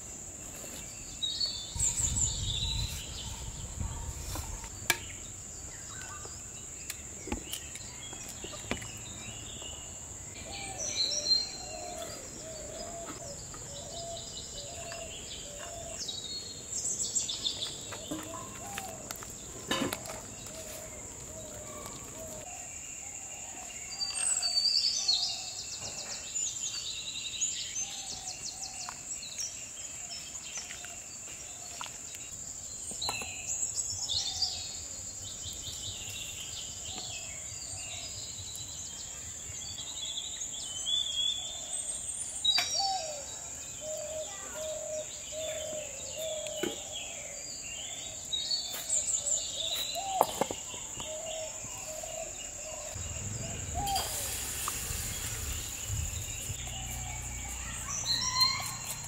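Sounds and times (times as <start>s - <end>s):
birds chirping and calling: 0.5s - 29.5s, 39.6s - 59.0s
high-pitched insect drone: 53.0s - 59.0s.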